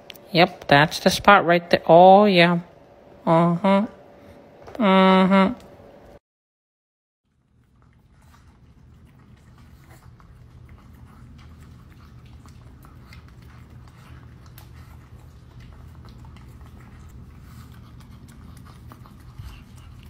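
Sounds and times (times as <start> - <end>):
low steady hum: 0.0 - 6.2, 7.2 - 20.0
dog chewing from metal bowl: 7.3 - 20.0.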